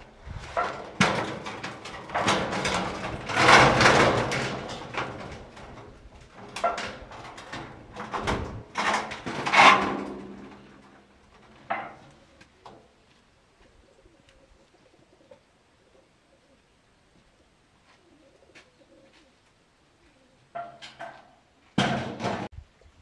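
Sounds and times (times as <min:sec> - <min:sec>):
wood scraping: 0:00.0 - 0:13.2.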